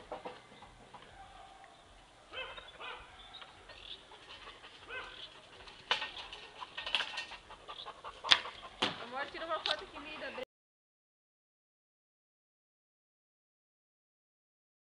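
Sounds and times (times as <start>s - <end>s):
dog barking and whining: 2.3s - 3.6s, 4.8s - 5.3s.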